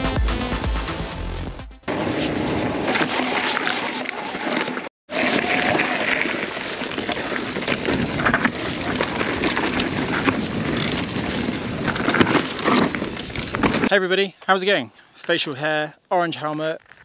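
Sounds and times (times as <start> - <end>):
bike tyre noise: 1.9 - 14.0
bike rattles and knocks: 2.9 - 14.0.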